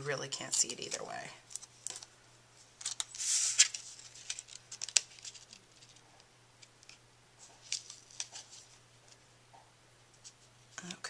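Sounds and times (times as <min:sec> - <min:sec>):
paper rustling slide: 0:02.9 - 0:05.4.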